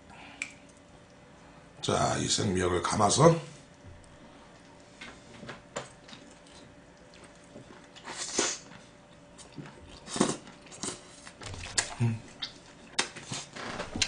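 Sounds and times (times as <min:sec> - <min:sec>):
chewing and lip smacking: 0:05.8 - 0:13.6.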